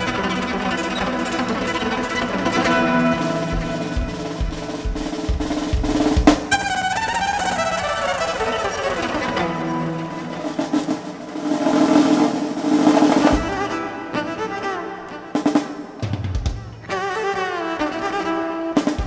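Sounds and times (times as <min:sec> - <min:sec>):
drum roll: 0:00.0 - 0:19.0
violin melody: 0:00.0 - 0:19.0
deep drum hits: 0:03.2 - 0:06.6.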